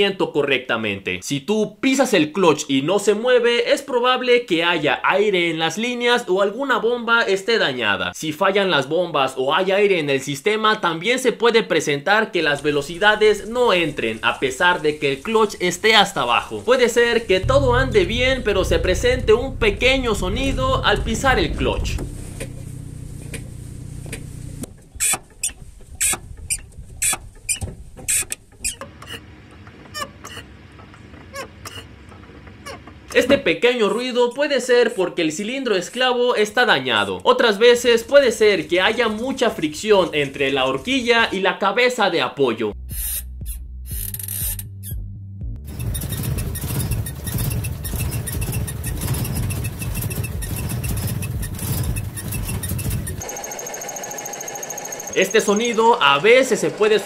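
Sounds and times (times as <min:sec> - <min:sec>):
engine idling: 0:16.6 - 0:33.4, 0:45.7 - 0:57.0
clutch squeaks: 0:22.0 - 0:33.4, 0:43.0 - 0:45.0, 0:45.7 - 0:56.0.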